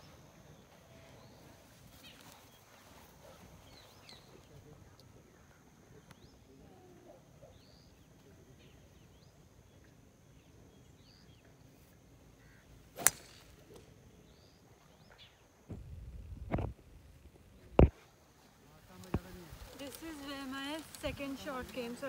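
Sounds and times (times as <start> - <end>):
birds chirping: 0.0 - 15.7
golf club striking ball: 13.0 - 13.5.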